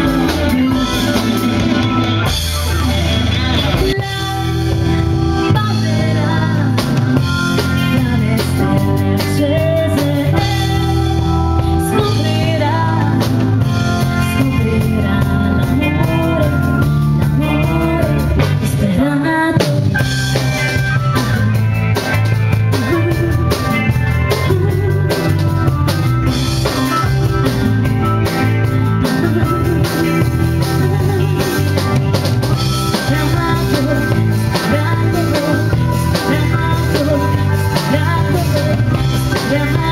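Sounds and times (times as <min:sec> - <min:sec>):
woman singing into microphone: 0:00.0 - 0:02.0, 0:03.1 - 0:20.4, 0:22.7 - 0:23.7, 0:24.3 - 0:25.3, 0:29.0 - 0:31.9, 0:32.6 - 0:39.9
drum kit: 0:00.0 - 0:39.9
electric guitar: 0:00.0 - 0:39.9.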